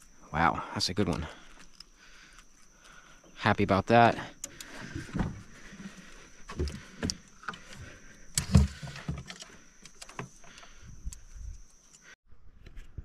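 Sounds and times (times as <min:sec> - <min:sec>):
handling bumps and rustles: 0:04.8 - 0:09.4.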